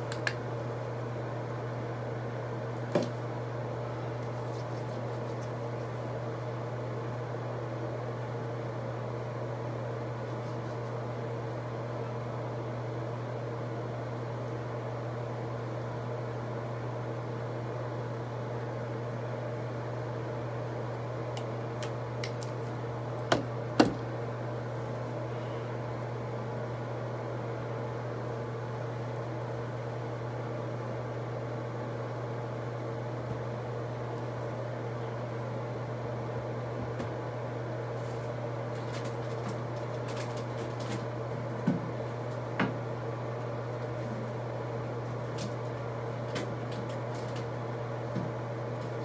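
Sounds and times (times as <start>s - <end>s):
low mechanical hum: 0.0s - 49.0s.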